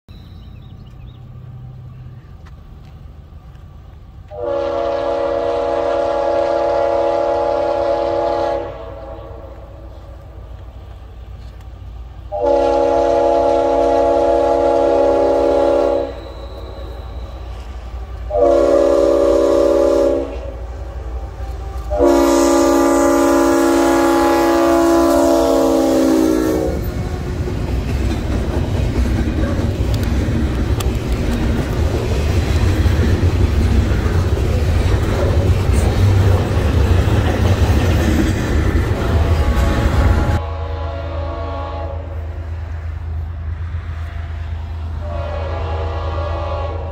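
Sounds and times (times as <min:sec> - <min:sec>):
train rumbling past: 0:00.1 - 0:46.9
locomotive air horn: 0:04.3 - 0:09.8, 0:12.3 - 0:17.3, 0:17.9 - 0:27.2, 0:39.1 - 0:42.3, 0:45.0 - 0:46.9
wheels on rails: 0:09.9 - 0:12.4, 0:26.8 - 0:40.4.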